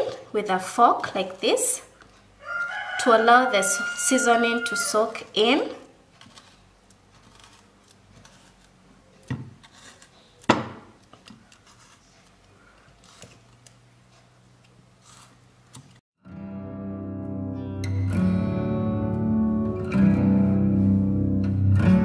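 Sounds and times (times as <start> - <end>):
fork scraping pumpkin: 4.4 - 10.4, 11.4 - 12.3
acoustic guitar music: 16.2 - 22.0.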